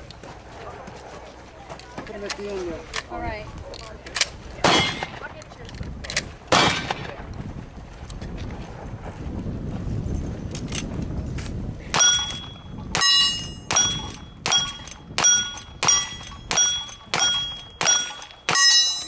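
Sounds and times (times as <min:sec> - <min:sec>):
gunshots hitting steel targets: 0:04.6 - 0:05.4, 0:06.5 - 0:07.2, 0:11.9 - 0:19.0.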